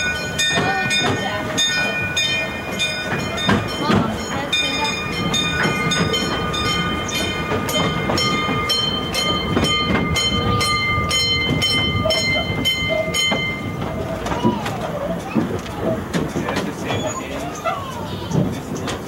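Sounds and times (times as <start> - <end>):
train rumble: 0.0 - 19.0
train wheels clicking over rail joints: 0.0 - 19.0
high-pitched wheel squeal: 16.8 - 18.4.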